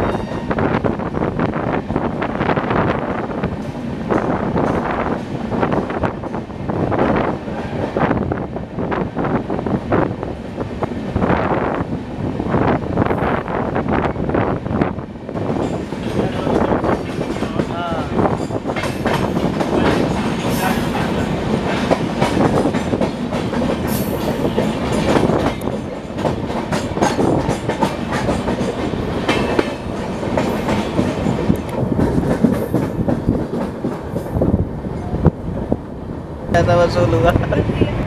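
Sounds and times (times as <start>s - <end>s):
rushing wind: 0.0s - 38.0s
train wheels clattering over rail joints: 15.4s - 34.4s.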